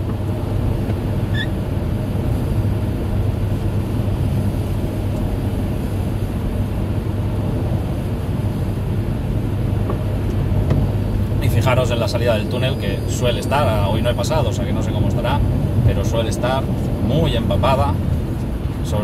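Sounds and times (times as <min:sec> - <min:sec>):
tyre noise on road: 0:00.0 - 0:05.2
car engine hum: 0:00.0 - 0:19.0.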